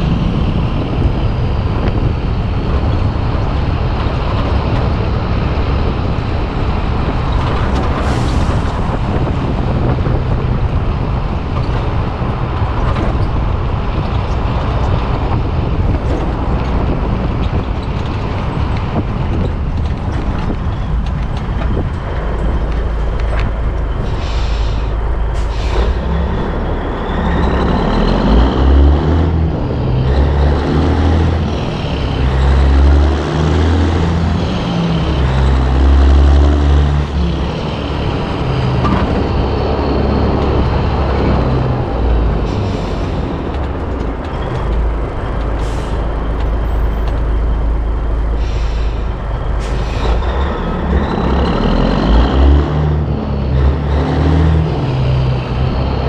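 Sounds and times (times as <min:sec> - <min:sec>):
truck rumbling: 0:00.0 - 0:56.0
air brake hisses: 0:24.0 - 0:26.0, 0:48.4 - 0:50.2.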